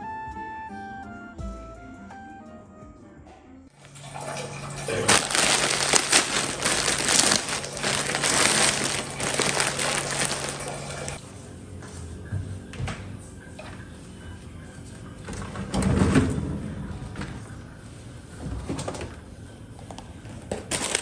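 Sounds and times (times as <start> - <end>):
plastic bags crinkling and rustling: 3.8 - 11.2, 20.5 - 21.0.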